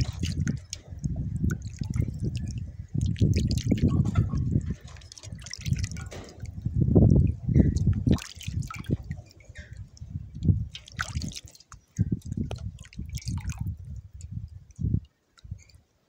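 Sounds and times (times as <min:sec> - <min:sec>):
water splashing into metal bowl: 0:00.0 - 0:09.9, 0:10.7 - 0:13.7
low bumps: 0:00.0 - 0:11.3.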